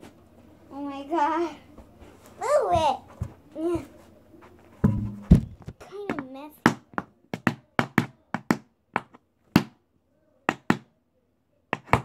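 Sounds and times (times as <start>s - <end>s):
tap shoes striking a board: 6.1s - 9.8s, 11.8s - 12.0s.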